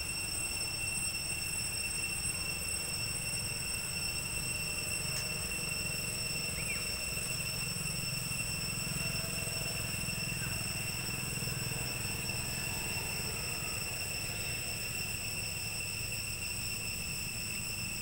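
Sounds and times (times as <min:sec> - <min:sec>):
faint chirp: 0:02.1 - 0:16.1.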